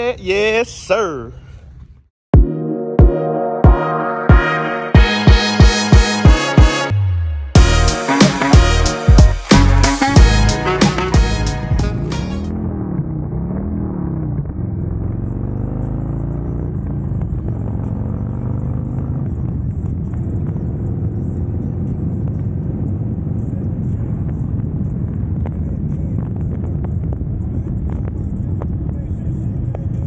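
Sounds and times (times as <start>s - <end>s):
motorcycle engine accelerating: 10.0s - 29.8s.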